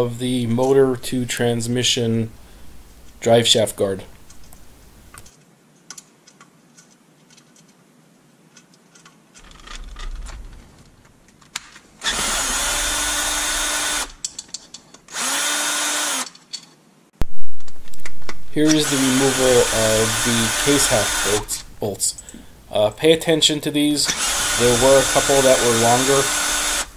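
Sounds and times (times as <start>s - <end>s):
cordless drill spinning: 12.0s - 14.2s, 15.1s - 16.3s, 18.7s - 21.6s, 24.0s - 26.9s.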